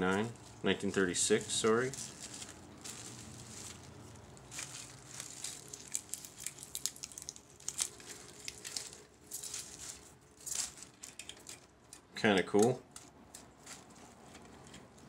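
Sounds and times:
bubble wrap crinkling: 0.0s - 12.0s, 12.9s - 15.0s
small clicks and ticks: 5.4s - 9.5s.

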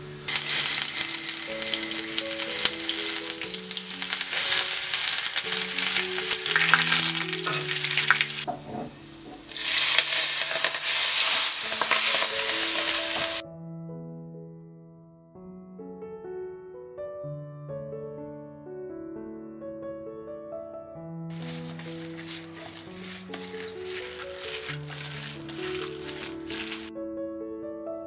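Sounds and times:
spices sizzling in oil: 0.1s - 8.5s, 9.2s - 13.4s, 21.3s - 26.9s.

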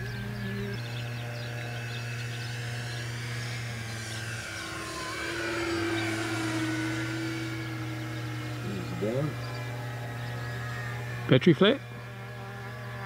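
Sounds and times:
model plane motors whining: 0.0s - 13.0s
steady low hum: 0.0s - 13.0s.

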